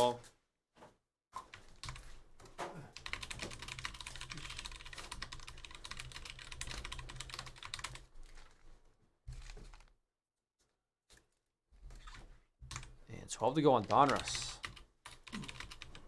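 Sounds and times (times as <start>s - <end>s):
typing on computer keyboard: 1.5s - 2.1s, 3.0s - 8.1s, 13.8s - 16.0s.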